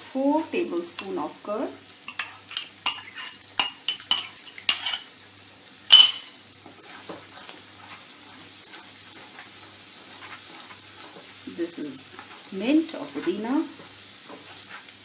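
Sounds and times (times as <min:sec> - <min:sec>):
food sizzling in wok: 0:00.0 - 0:15.0
spatula stirring: 0:02.0 - 0:05.1, 0:05.9 - 0:15.0
metal spoon clinking on glass: 0:02.1 - 0:05.1, 0:05.9 - 0:06.3.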